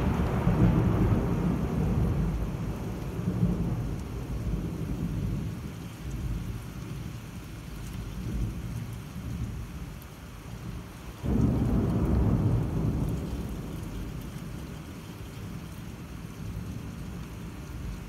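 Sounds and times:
loud peal of thunder: 0.0s - 5.2s, 11.2s - 14.2s
thunder rumble: 0.0s - 7.4s, 8.0s - 18.0s
rain pattering on window glass: 0.0s - 18.0s.

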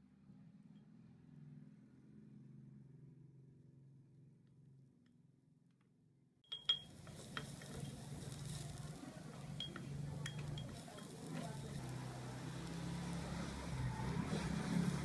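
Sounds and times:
onion sizzling in butter: 6.5s - 15.0s
wooden spoon clicking against pot: 9.6s - 11.1s.

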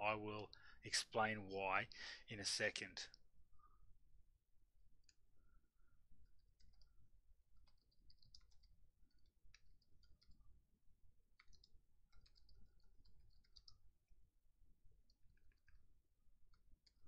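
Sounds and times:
computer keyboard typing: 7.6s - 10.5s, 11.3s - 13.8s, 15.1s - 15.8s.

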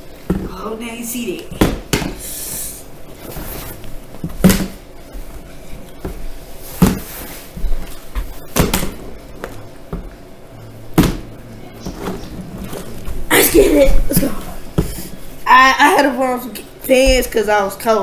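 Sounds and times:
plastic bottle thudding on wooden floor: 11.0s - 11.3s.

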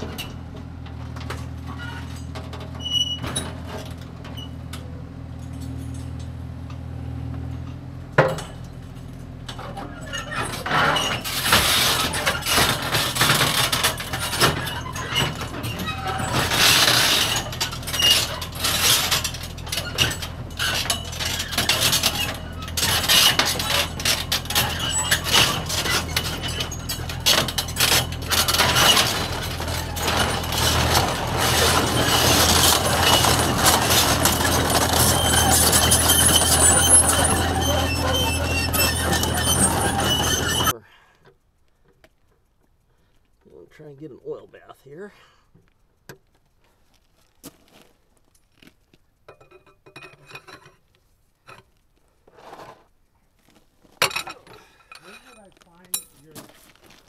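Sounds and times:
steel tracks clanking on metal ramps: 0.0s - 6.8s, 7.4s - 40.8s, 54.0s - 56.8s
excavator diesel engine running: 0.0s - 40.8s.

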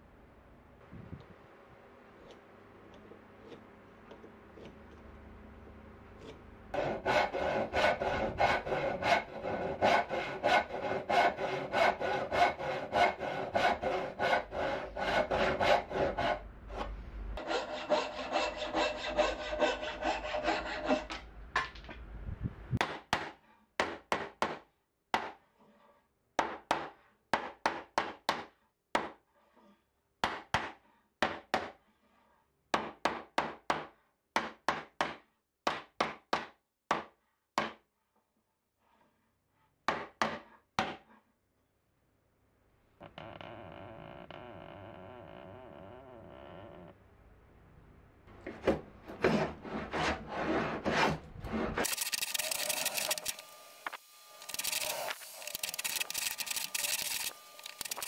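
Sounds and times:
hand saw cutting wood: 6.2s - 21.2s, 48.4s - 58.0s.

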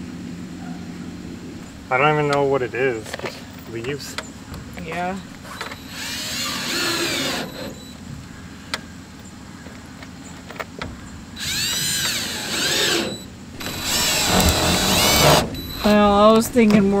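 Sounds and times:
cordless drill whining: 5.4s - 8.0s, 11.4s - 16.4s.

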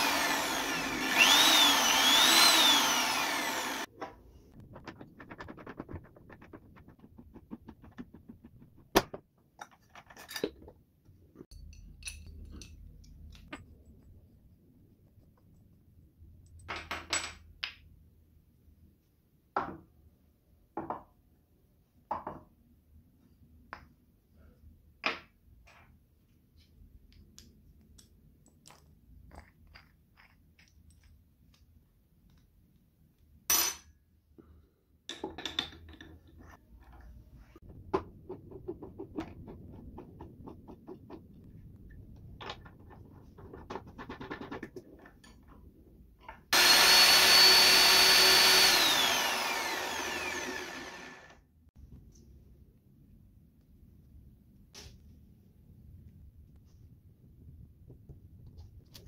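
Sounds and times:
drill press motor whine: 0.0s - 3.9s, 46.6s - 51.4s.

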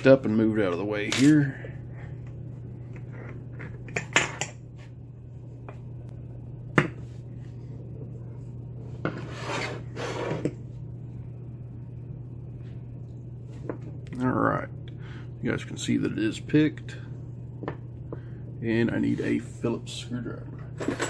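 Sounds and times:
scraping rub: 9.1s - 10.5s.

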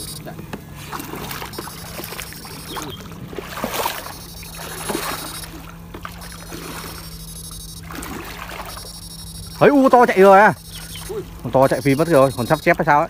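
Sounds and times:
high electrical whine: 0.0s - 0.4s, 1.2s - 13.0s
water splashing and bubbling: 0.0s - 9.0s
low electrical hum: 0.0s - 13.0s.

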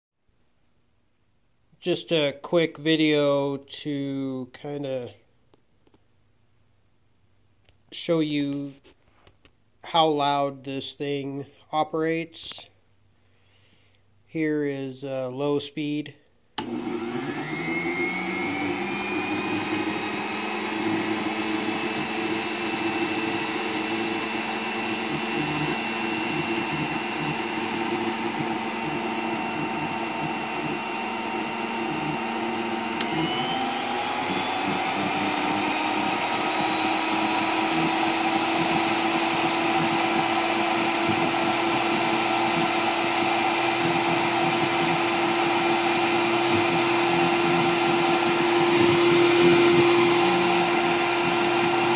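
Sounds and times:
motor unit whining: 16.6s - 51.9s.

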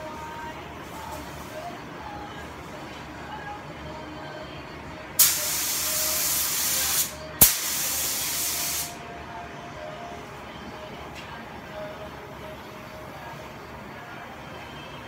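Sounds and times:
paint spray gun hissing: 5.2s - 9.0s.

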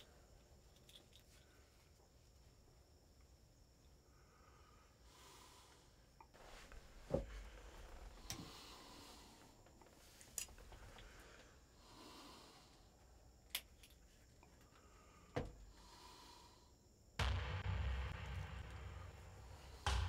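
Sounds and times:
low thump: 17.2s - 20.0s.

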